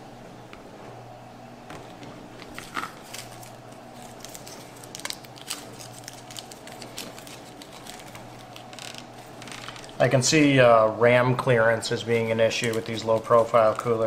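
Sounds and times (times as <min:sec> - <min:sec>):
plastic crinkling: 0:01.8 - 0:10.1, 0:11.9 - 0:14.0.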